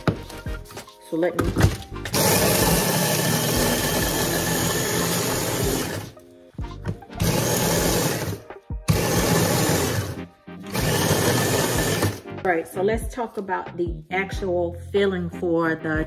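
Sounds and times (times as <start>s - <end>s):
electric food chopper grinding: 1.6s - 6.2s, 6.8s - 12.3s.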